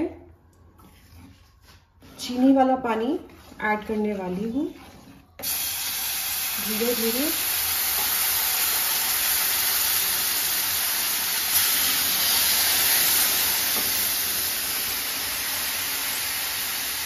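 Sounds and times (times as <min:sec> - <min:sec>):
liquid sizzling in hot pan: 0:05.4 - 0:17.0.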